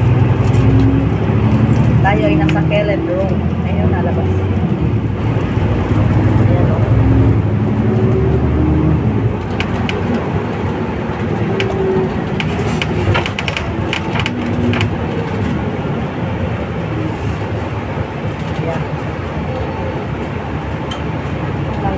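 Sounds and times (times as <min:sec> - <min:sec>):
bus engine and road rumble: 0:00.0 - 0:21.9
sharp rattles and clicks: 0:09.4 - 0:15.6.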